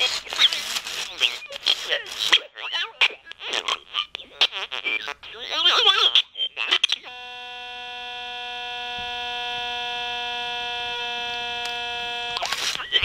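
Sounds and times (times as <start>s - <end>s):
garbled electronic voice: 0.0s - 7.2s, 12.4s - 13.0s
steady electronic note from speaker: 7.1s - 12.4s.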